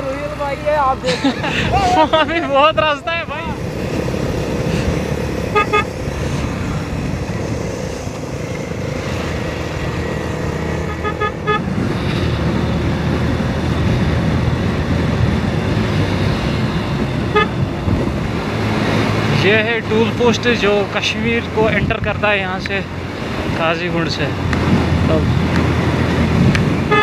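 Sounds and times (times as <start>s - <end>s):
motorcycle engine: 0.0s - 27.0s
wind and road noise: 0.0s - 27.0s
horn toots: 5.4s - 6.0s, 10.7s - 11.7s, 17.3s - 17.6s, 26.8s - 27.0s.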